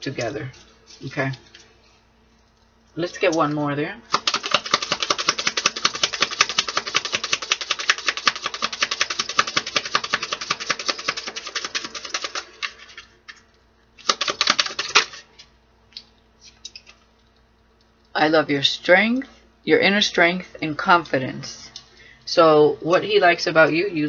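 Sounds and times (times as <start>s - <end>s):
cards being shuffled: 4.1s - 13.1s, 14.0s - 15.2s.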